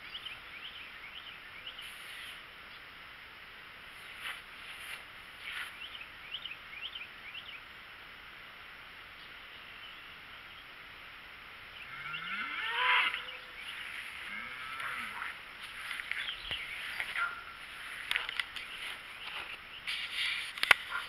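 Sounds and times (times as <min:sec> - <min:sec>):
birds chirping: 0:00.0 - 0:03.0, 0:03.8 - 0:08.0, 0:08.8 - 0:10.9, 0:11.5 - 0:21.0
cow mooing: 0:11.9 - 0:13.5, 0:14.2 - 0:15.4.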